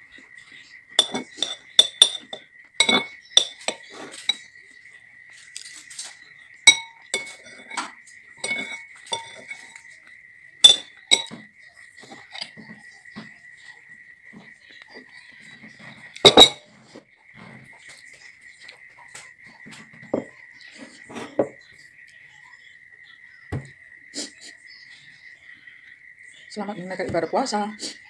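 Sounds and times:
metal spoon clinking on bowl: 0:01.0 - 0:04.4, 0:06.7 - 0:09.8, 0:10.6 - 0:11.4, 0:16.2 - 0:16.6.

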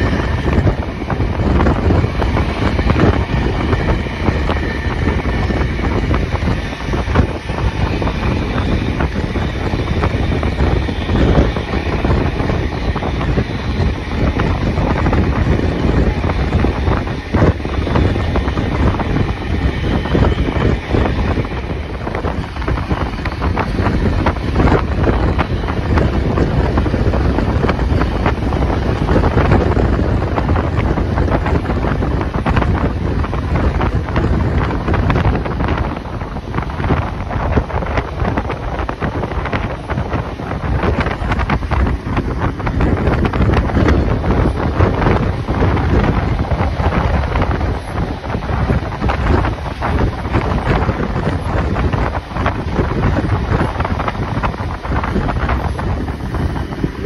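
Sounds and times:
moving vehicle rumble: 0:00.0 - 0:57.0
wind buffeting microphone: 0:00.0 - 0:57.0.

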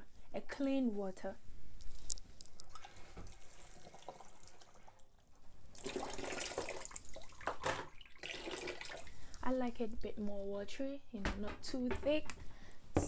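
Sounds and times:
tap water splashing into container: 0:05.8 - 0:09.1.

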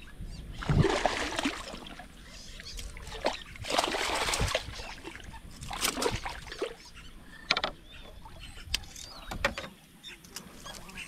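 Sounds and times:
water splashing against boat: 0:00.5 - 0:06.9.

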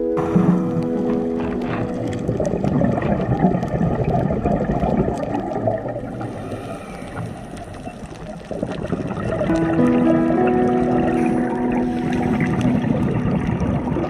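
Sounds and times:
rumbling water: 0:00.0 - 0:14.0
faint clicks: 0:00.7 - 0:10.0.

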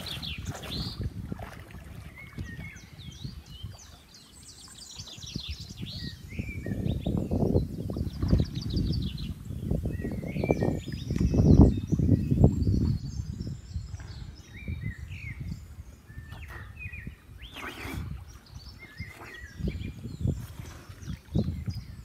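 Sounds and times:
small birds chirping: 0:02.1 - 0:22.0.

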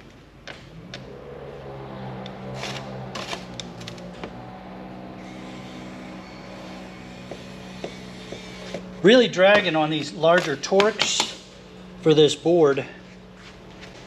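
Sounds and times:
electric screwdriver motor running: 0:05.2 - 0:08.8.

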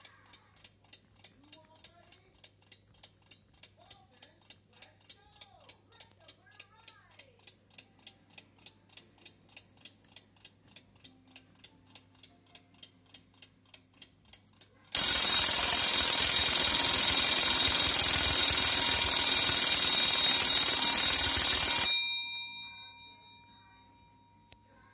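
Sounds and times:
clockwork ticking: 0:00.0 - 0:24.9
alarm bell ringing: 0:15.0 - 0:24.7.

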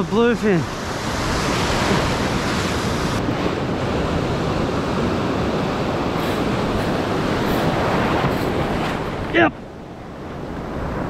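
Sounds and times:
surf breaking over rocks: 0:00.0 - 0:11.0
wind on microphone: 0:00.6 - 0:11.0.

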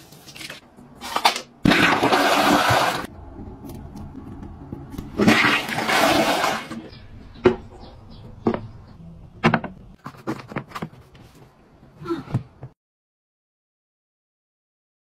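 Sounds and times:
toilet flushing: 0:01.7 - 0:03.1, 0:05.2 - 0:06.9.

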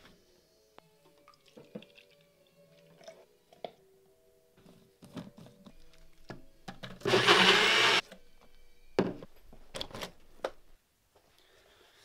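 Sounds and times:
blender running: 0:07.1 - 0:08.0.

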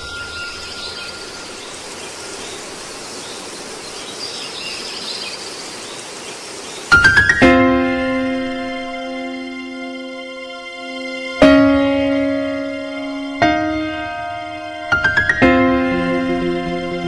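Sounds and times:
steady ambient hiss: 0:00.0 - 0:17.0
music with loud chord: 0:07.0 - 0:17.0.

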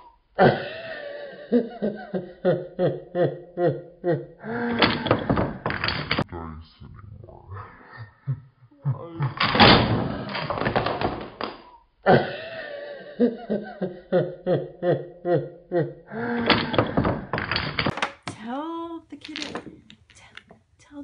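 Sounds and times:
laughter: 0:00.4 - 0:04.8, 0:07.7 - 0:09.5, 0:12.1 - 0:16.7
wooden blocks clattering: 0:04.8 - 0:06.2, 0:09.3 - 0:11.6, 0:16.4 - 0:18.4, 0:19.2 - 0:20.4.

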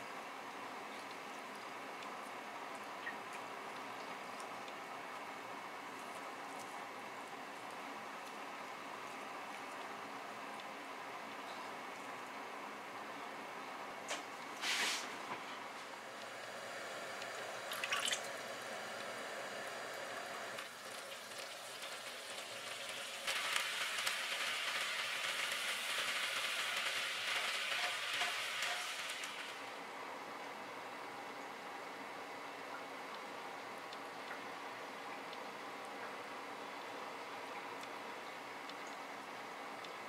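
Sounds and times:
room tone hiss: 0:00.0 - 0:40.0
sauce bubbling and sizzling: 0:20.7 - 0:29.6.

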